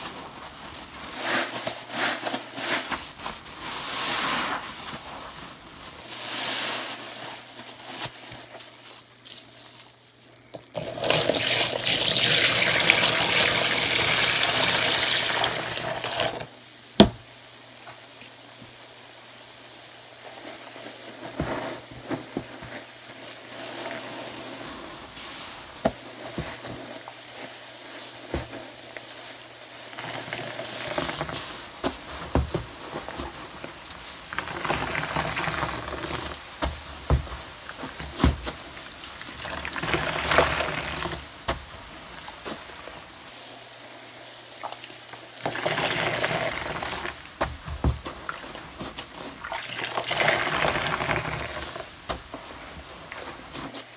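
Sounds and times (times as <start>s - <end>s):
running water rushing: 10.8s - 16.5s, 29.8s - 43.6s, 44.4s - 53.6s
soapy sponge squelching: 20.2s - 53.9s.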